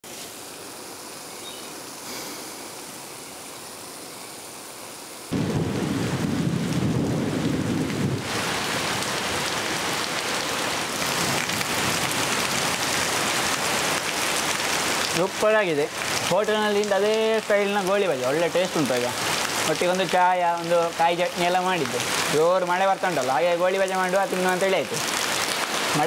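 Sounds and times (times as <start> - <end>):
heavy rain off a tiled roof: 0.0 - 26.0
thunder rumble: 5.3 - 9.1.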